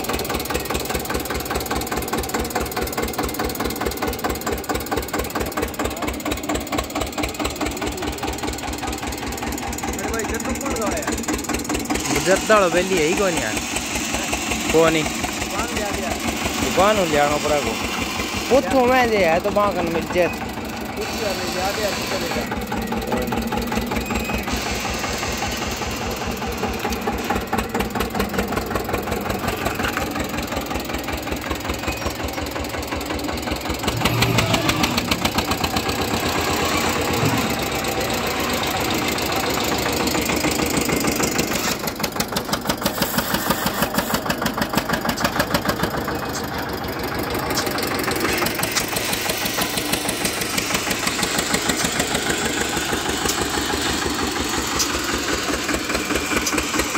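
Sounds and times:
tractor diesel engine running: 0:00.0 - 0:56.9.

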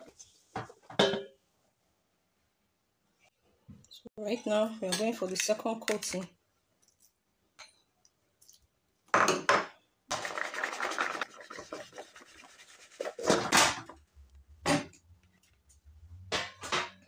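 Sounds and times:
peanuts rattling in plastic bowl: 0:10.1 - 0:12.0.

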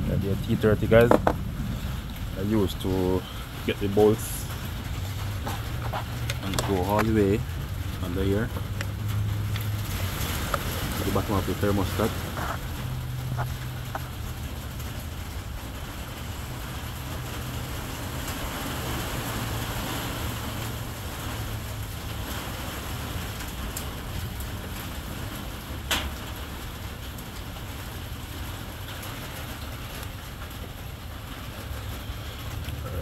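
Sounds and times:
steady low hum: 0:00.0 - 0:22.4.

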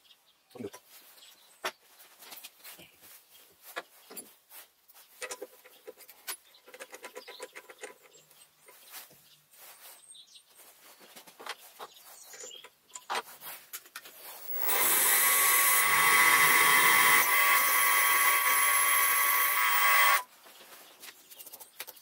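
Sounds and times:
mill motor drilling metal: 0:14.3 - 0:20.3.

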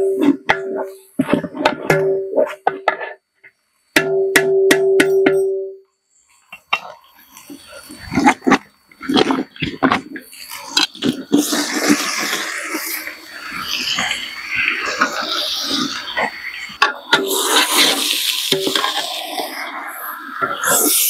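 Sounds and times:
food sizzling in hot oil: 0:10.3 - 0:21.0.

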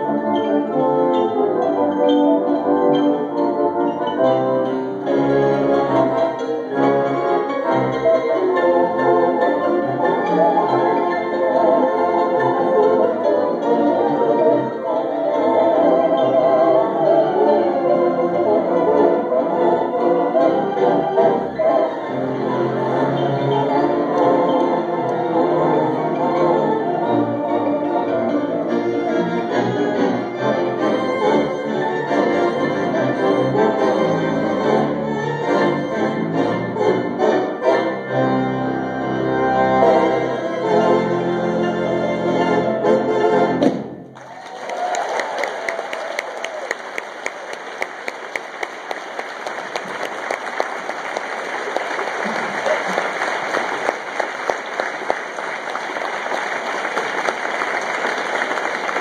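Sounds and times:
theatre organ playing melody: 0:00.0 - 0:44.2, 0:46.9 - 0:59.0
audience applauding: 0:44.2 - 0:59.0.

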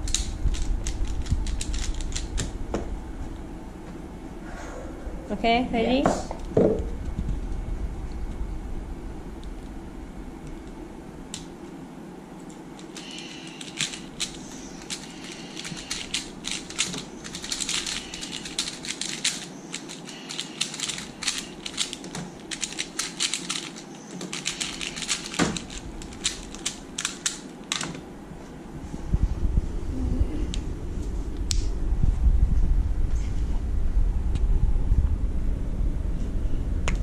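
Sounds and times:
speed cube clicking: 0:00.0 - 0:02.5, 0:12.8 - 0:28.0.

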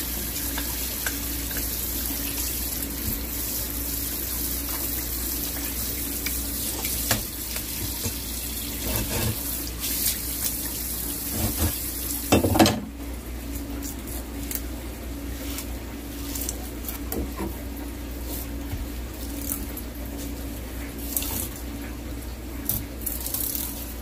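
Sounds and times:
tap water running: 0:00.0 - 0:14.6
fish scraping on cutting board: 0:08.8 - 0:09.5, 0:11.3 - 0:11.8.

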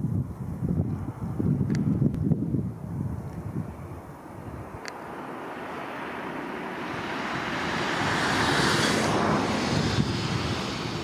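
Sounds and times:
wind buffeting microphone: 0:00.0 - 0:11.0
car passing by: 0:04.7 - 0:11.0.

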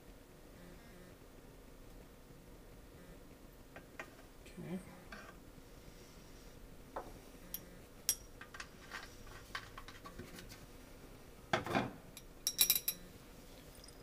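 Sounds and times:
glass labware clicking: 0:12.2 - 0:13.0
glassy clinks: 0:12.2 - 0:13.0, 0:13.7 - 0:14.0.

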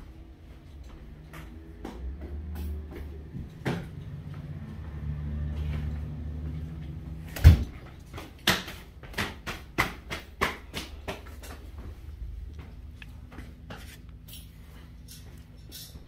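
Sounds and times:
footsteps on vinyl flooring: 0:00.0 - 0:16.0
low steady hum: 0:10.8 - 0:16.0.

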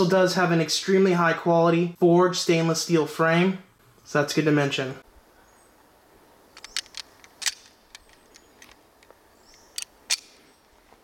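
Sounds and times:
faint outdoor background: 0:00.0 - 0:11.0
pistol metallic clicks: 0:06.5 - 0:10.4.

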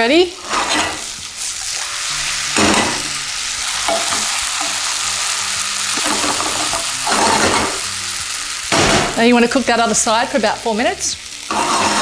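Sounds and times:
omelette sizzling in a frying pan: 0:00.0 - 0:12.0
wooden spatula scraping a pan: 0:11.5 - 0:12.0.

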